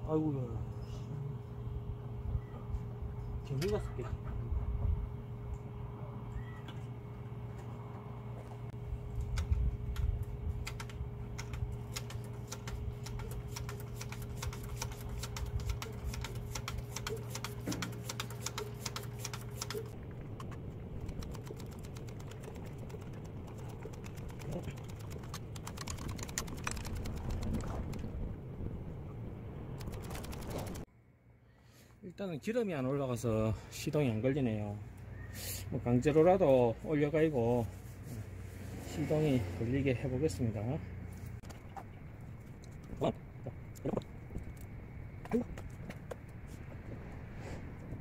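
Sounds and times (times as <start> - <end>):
low hum: 0.0 - 31.8
hand priming pump clicking: 9.3 - 20.0.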